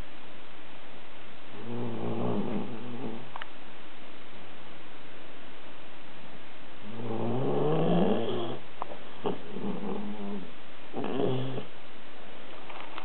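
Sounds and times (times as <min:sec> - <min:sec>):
dog snoring: 0:01.5 - 0:03.4, 0:06.8 - 0:08.6, 0:09.2 - 0:11.7.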